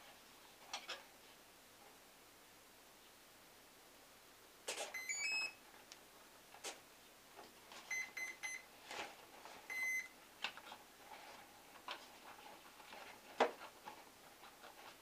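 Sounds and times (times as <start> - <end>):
quick beeps: 5.0 - 5.6, 7.9 - 8.6, 9.7 - 10.1.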